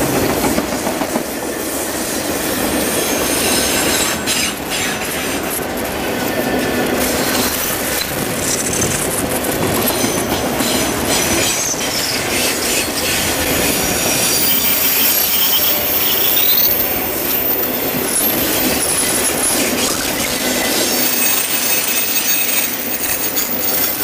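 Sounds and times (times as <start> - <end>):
train wheels rumbling on rail: 0.0 - 24.0
high-pitched wheel squeal: 2.2 - 5.6, 9.8 - 24.0
wheels clicking over rail joints: 2.9 - 24.0.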